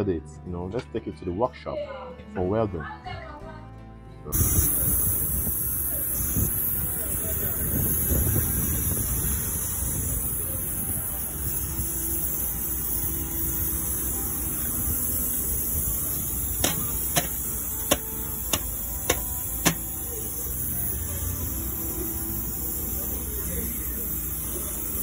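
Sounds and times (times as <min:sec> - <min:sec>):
welding torch flame rushing: 0:04.4 - 0:25.0
sharp taps: 0:16.6 - 0:19.8.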